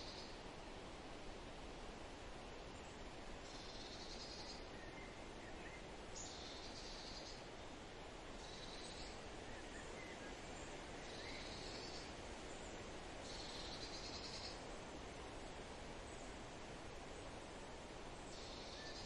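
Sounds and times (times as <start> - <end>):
steady outdoor hiss: 0.0 - 19.0.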